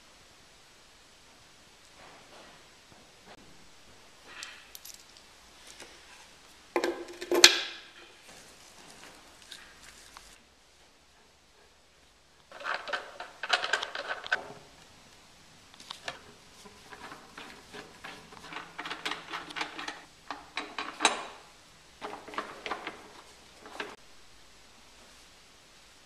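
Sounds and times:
scraping: 22.0 - 24.0.

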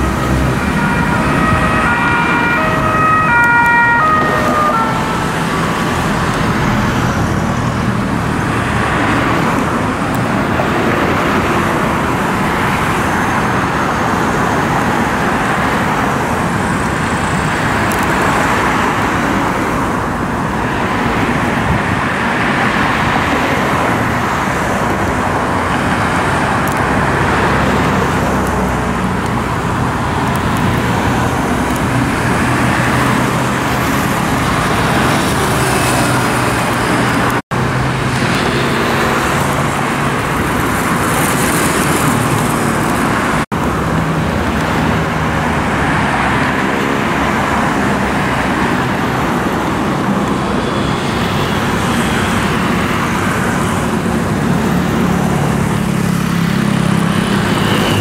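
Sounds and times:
heavy road traffic passing: 0.0 - 58.0.

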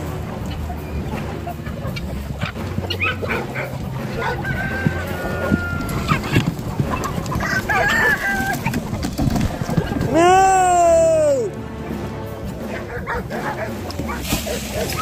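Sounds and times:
chickens clucking and calling: 0.0 - 10.1, 12.5 - 15.0
rooster crowing: 4.2 - 6.2, 7.4 - 8.5.

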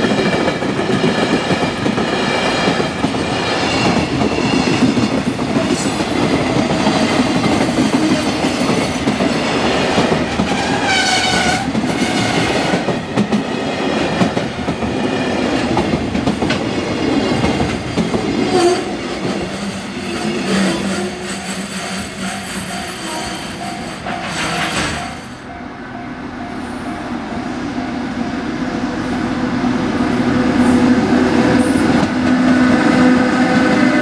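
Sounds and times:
freight train wheels clattering: 0.0 - 25.5.

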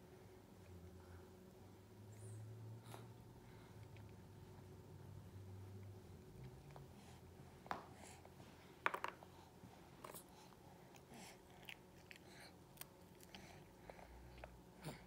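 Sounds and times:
baby chewing: 10.9 - 15.0.

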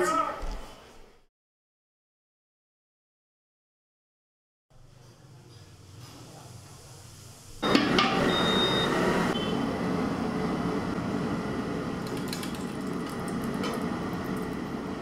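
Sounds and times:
stove rushing noise: 4.8 - 15.0.

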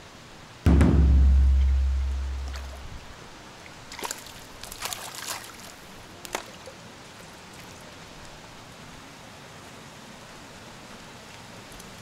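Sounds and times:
running water rushing: 0.7 - 11.7
small water splashes: 2.4 - 8.4.

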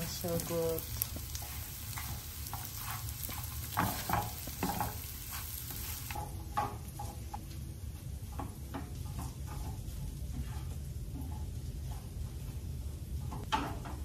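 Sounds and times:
chicken and onions sizzling: 0.0 - 7.4
tongs scraping and tapping pan: 0.0 - 7.4, 8.2 - 12.2.

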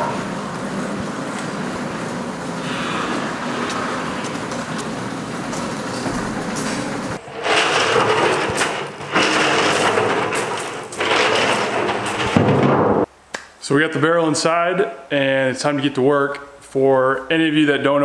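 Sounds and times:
garage door opener running: 0.0 - 13.1
steel drum rolling over gravel: 7.2 - 12.7.

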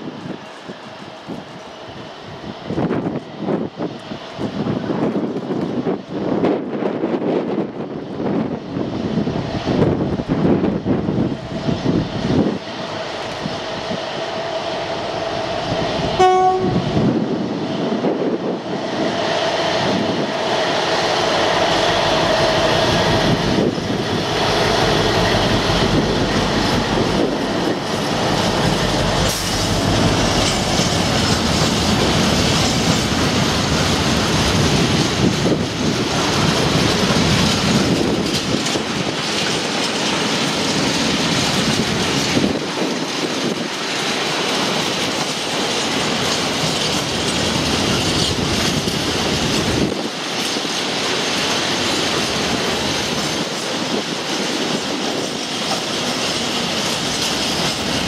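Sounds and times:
diesel locomotive engine: 0.0 - 58.0
train horn blast: 16.2 - 17.1
wagon wheels clattering on rails: 36.1 - 58.0.

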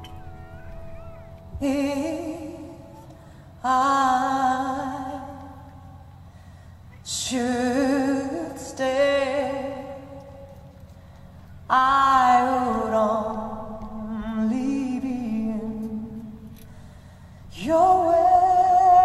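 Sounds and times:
woman singing with vibrato: 1.3 - 6.0, 7.1 - 10.2, 11.7 - 16.4, 17.5 - 19.0.

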